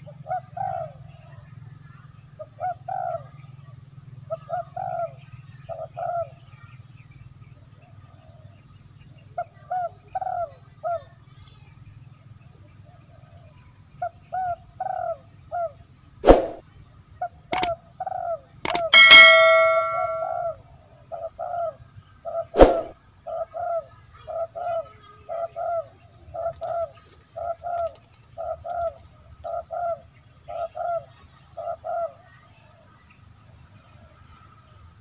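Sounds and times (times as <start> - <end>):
sharp clicks: 18.7 - 20.3
bell-like ringing tone: 18.7 - 20.4.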